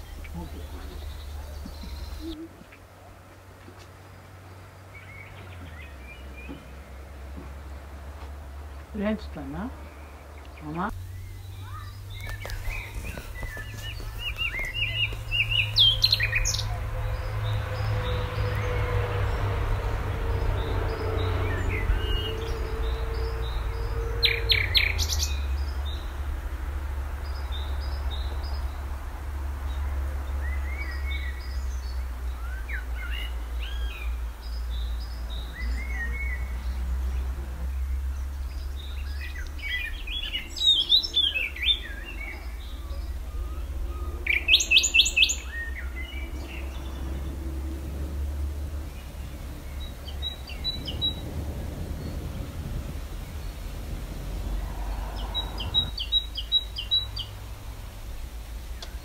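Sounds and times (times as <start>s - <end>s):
songbirds chirping: 0.0s - 59.0s
steady low rumble: 45.4s - 59.0s.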